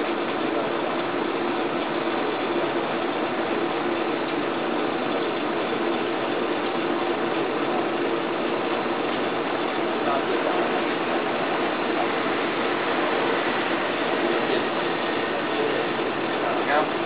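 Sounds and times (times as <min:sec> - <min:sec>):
kiln rushing with low hum: 0:00.0 - 0:17.0.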